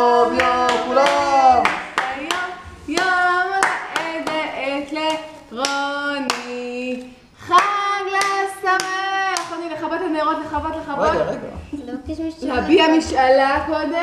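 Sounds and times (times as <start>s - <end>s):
group singing: 0.0s - 11.8s
hands clapping: 0.3s - 9.7s.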